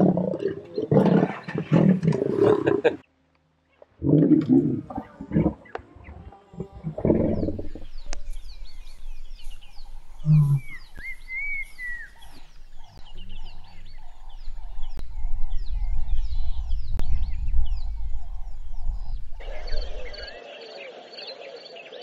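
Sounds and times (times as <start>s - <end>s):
lion snarling: 0.0s - 3.0s
low rumble: 6.8s - 20.3s
birds chirping and whistling: 7.1s - 22.0s.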